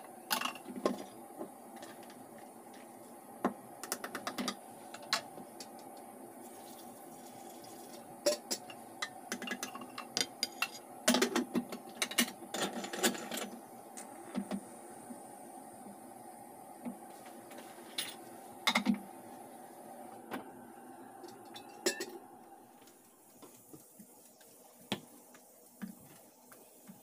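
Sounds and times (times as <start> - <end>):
water pouring into pot: 6.4 - 8.1.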